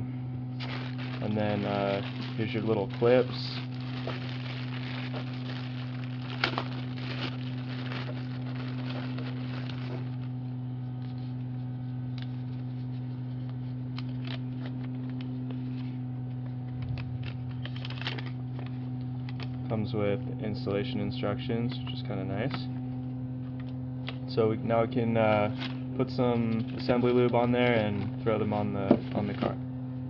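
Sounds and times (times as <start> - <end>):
low electrical hum: 0.0 - 30.0
paper handling: 0.6 - 10.3, 12.2 - 19.5, 25.4 - 28.1
plastic packaging crinkling: 0.6 - 10.3, 17.6 - 18.6, 25.5 - 25.9.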